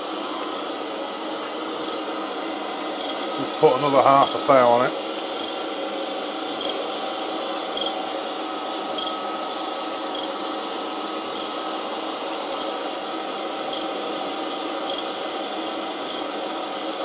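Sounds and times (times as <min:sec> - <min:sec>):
surface grinder grinding steel: 0:03.0 - 0:16.3.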